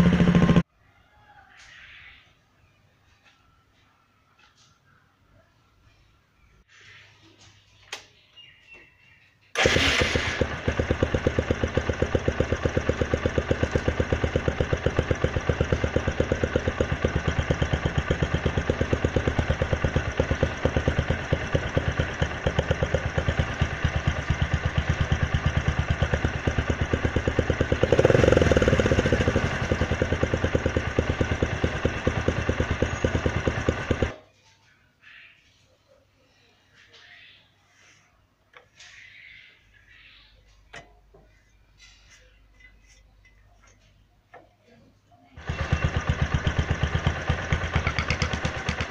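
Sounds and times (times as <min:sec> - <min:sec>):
motorcycle engine idling: 0:00.0 - 0:00.7, 0:09.6 - 0:34.3, 0:45.3 - 0:48.9
motorcycle engine revving: 0:00.0 - 0:00.7, 0:09.6 - 0:34.2, 0:45.4 - 0:48.9.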